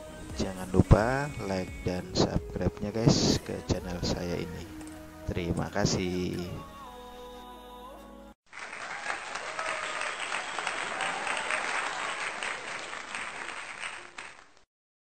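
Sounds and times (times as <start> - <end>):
crowd applauding: 8.5 - 14.7.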